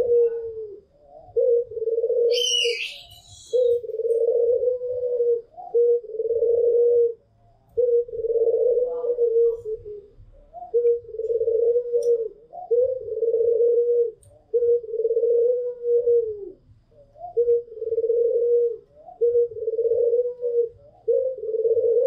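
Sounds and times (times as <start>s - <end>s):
doves cooing: 0.0s - 22.0s.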